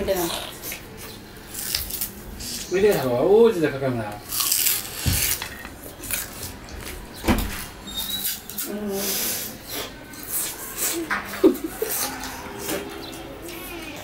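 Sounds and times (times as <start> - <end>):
chewing and ripping sugarcane: 0.6 - 3.0, 4.1 - 8.8.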